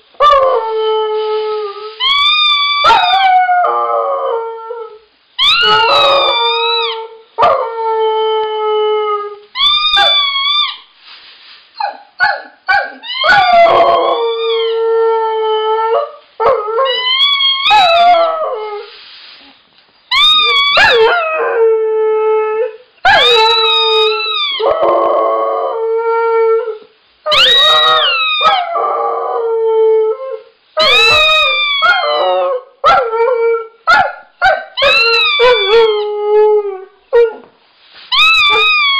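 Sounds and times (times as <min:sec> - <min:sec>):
dog yelping: 0:02.0 - 0:03.3, 0:05.4 - 0:07.0, 0:09.6 - 0:10.8, 0:11.8 - 0:14.6, 0:20.1 - 0:21.3, 0:23.1 - 0:24.8, 0:27.3 - 0:28.7, 0:30.8 - 0:33.1, 0:33.9 - 0:36.0, 0:38.1 - 0:38.9.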